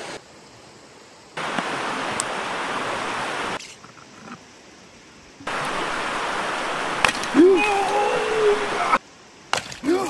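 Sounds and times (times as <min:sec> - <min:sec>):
river water rushing: 0:01.4 - 0:03.6, 0:05.4 - 0:09.0.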